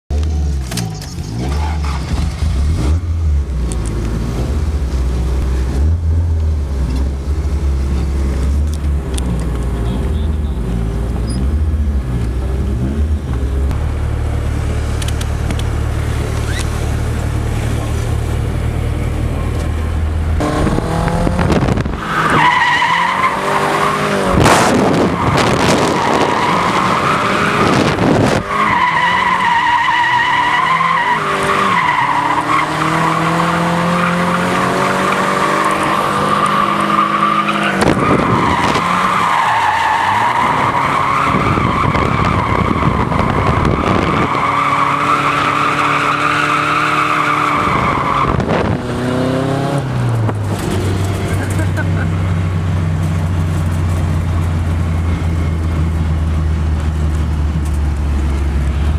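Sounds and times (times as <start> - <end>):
car engine revving: 0.2 - 58.9
tyre squealing: 16.4 - 16.8, 24.9 - 48.5.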